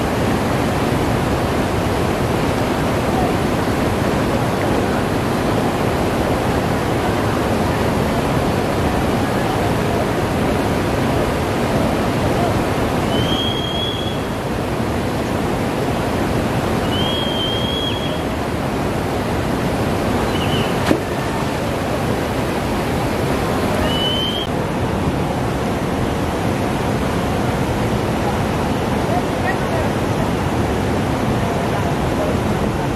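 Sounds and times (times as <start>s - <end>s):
river rushing over rocks: 0.0s - 32.9s
short high whistles: 13.1s - 14.2s, 16.8s - 18.2s, 20.3s - 20.8s, 23.8s - 24.5s.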